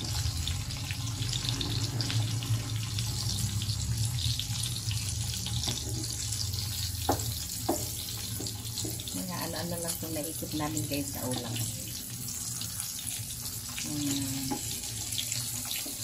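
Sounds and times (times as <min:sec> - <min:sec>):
meat sizzling in grill pan: 0:00.0 - 0:16.0
wooden spatula scraping: 0:05.6 - 0:06.4.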